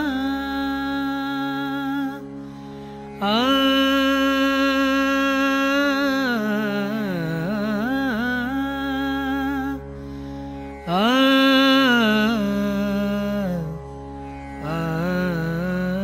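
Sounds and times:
man singing devotional song: 3.2s - 9.9s, 10.8s - 13.8s, 14.6s - 16.0s.

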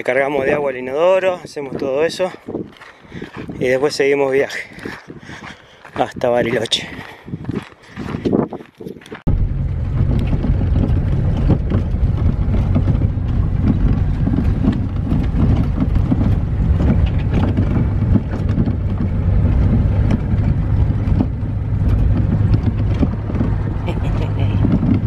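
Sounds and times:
truck engine and road rumble: 0.0s - 25.0s
gravel clicks and knocks: 5.9s - 23.8s.

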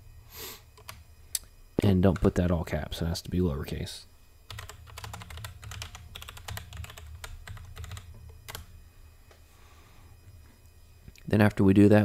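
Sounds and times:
computer keyboard typing: 0.8s - 1.0s, 2.1s - 2.4s, 4.5s - 8.7s.

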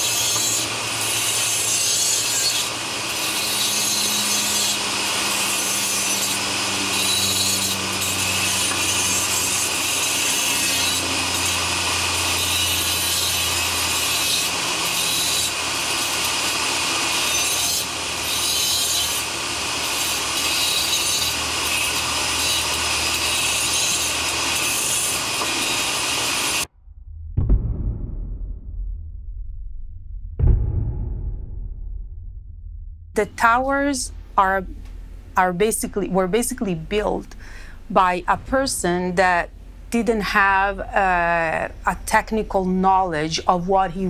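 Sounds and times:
die grinder cutting: 0.0s - 26.7s.

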